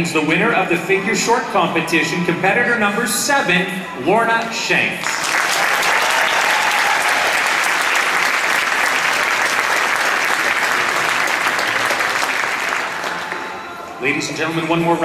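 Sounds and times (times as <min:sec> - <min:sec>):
audience applauding: 0:05.0 - 0:13.6.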